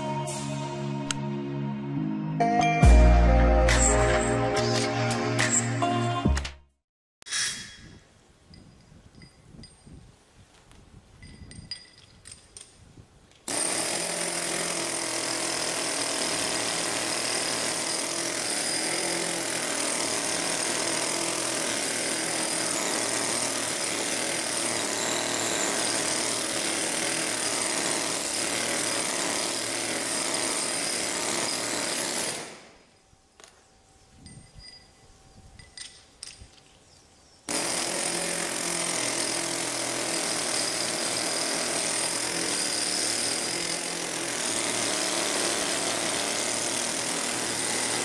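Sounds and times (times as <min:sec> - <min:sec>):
rock drill hammering into stone: 0:13.5 - 0:32.8, 0:37.5 - 0:48.0.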